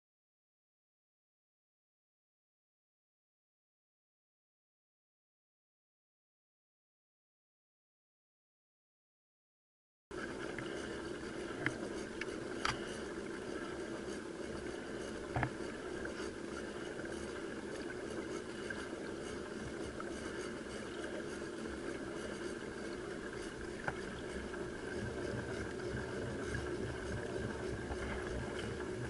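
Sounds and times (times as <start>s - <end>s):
pedal boat drive whirring: 10.1s - 29.0s.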